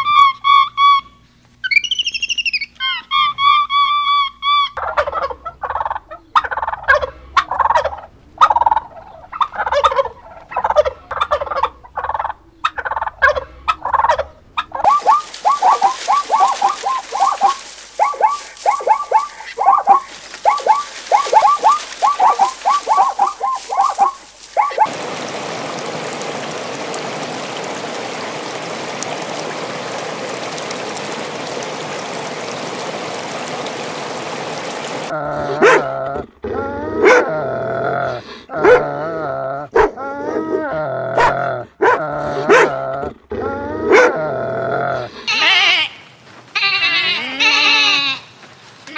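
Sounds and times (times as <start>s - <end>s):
turkeys gobbling: 0.0s - 35.2s
steady hiss: 14.9s - 35.1s.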